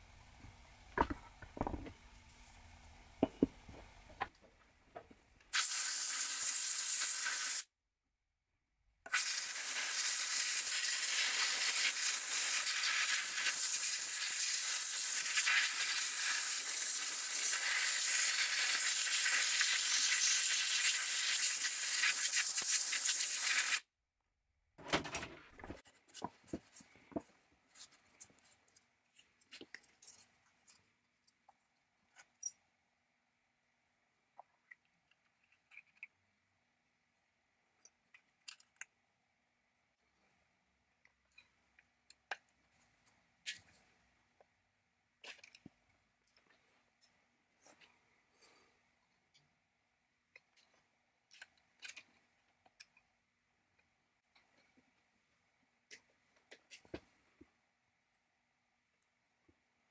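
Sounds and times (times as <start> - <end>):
aerosol spray hissing: 5.5 - 7.7, 9.1 - 23.8.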